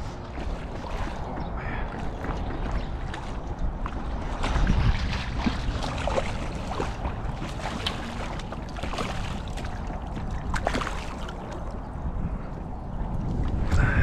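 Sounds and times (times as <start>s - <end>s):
wind buffeting microphone: 0.0s - 14.0s
fish splashing in water: 0.3s - 11.8s.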